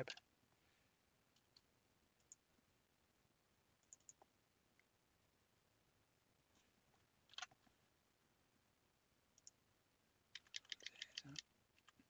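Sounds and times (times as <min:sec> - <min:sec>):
computer mouse click: 0:03.8 - 0:04.3, 0:09.4 - 0:09.6, 0:10.4 - 0:12.0
keyboard keystrokes: 0:10.4 - 0:12.0.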